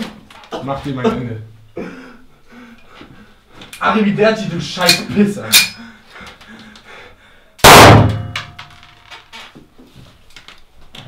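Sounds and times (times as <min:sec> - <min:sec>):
loud pistol shot: 0:07.6 - 0:08.4.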